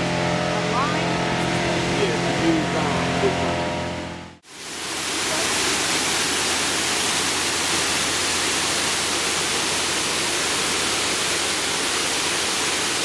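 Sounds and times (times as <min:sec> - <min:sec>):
water rushing over weir gates: 0:04.4 - 0:13.0.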